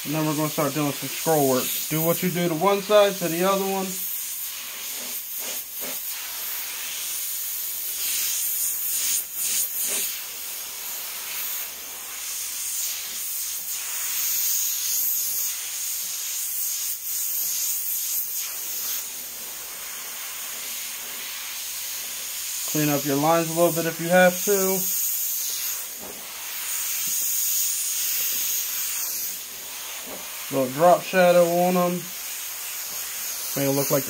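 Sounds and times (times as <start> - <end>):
airbrush hissing: 0.0 - 34.0.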